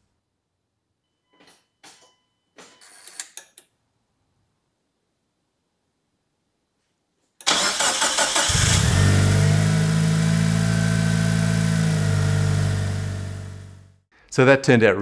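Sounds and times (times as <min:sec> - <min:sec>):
car engine starting and idling: 0:07.5 - 0:14.0.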